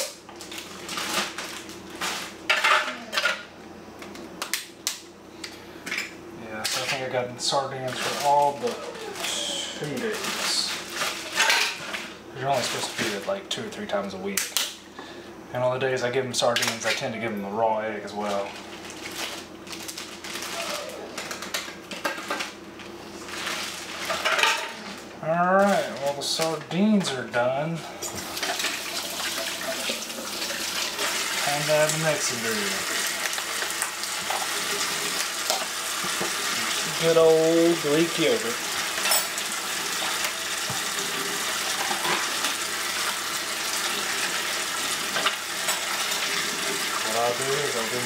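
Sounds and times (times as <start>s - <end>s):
plastic bags rustling: 0.4s - 3.1s, 6.7s - 13.3s, 18.2s - 22.4s, 23.1s - 27.3s
containers and utensils clattering: 10.0s - 13.2s, 23.3s - 25.0s, 37.9s - 42.6s.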